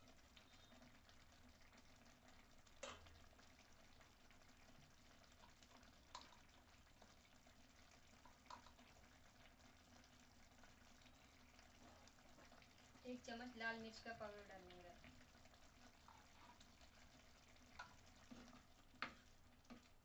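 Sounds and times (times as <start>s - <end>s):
thick sauce bubbling: 0.0s - 20.0s.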